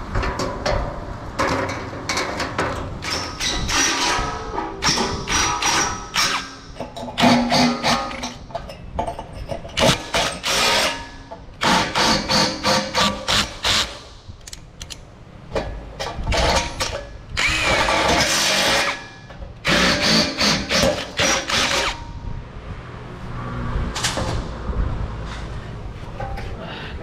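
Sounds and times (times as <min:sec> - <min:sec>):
power drill boring through steel: 0:17.4 - 0:19.0, 0:19.7 - 0:22.0.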